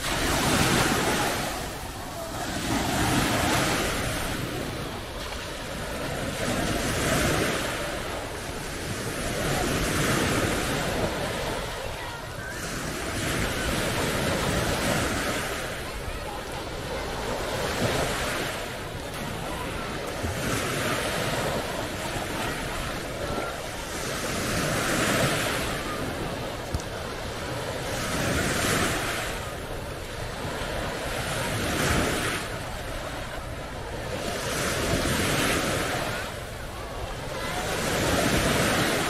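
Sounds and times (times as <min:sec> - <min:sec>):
small waves breaking on shore: 0:00.0 - 0:39.0.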